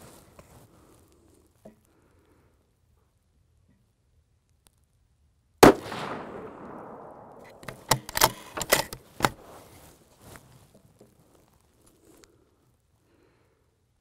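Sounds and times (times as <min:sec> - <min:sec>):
rifle shot echoing: 0:05.6 - 0:09.5
sharp clicks: 0:07.1 - 0:09.4.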